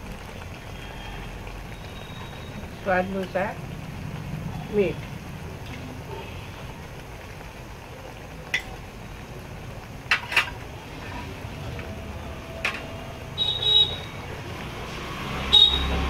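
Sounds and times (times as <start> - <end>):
utensils clinking on cookware: 10.1 - 11.3.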